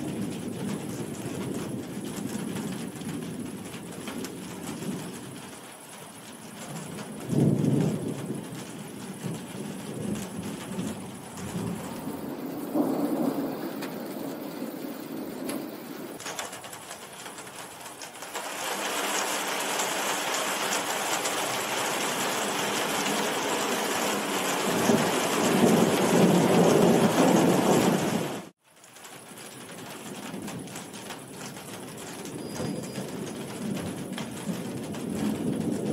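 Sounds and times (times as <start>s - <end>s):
rolling thunder: 0.0s - 16.2s, 22.2s - 28.5s, 30.2s - 35.9s
heavy rain: 0.0s - 35.9s.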